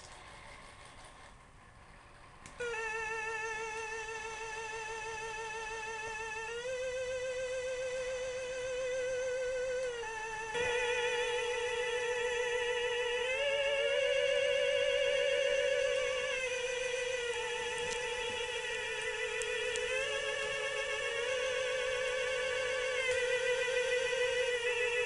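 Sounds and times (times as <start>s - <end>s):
click: 2.4s - 2.7s, 17.8s - 18.4s, 19.0s - 20.5s
electronic wavering wail: 2.6s - 25.0s.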